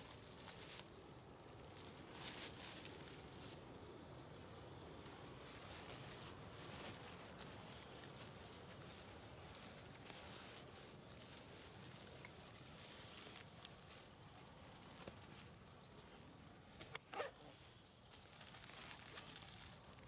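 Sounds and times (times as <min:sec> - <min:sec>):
faint outdoor hiss: 0:00.0 - 0:20.0
backpack clicks and rustling: 0:16.7 - 0:19.9.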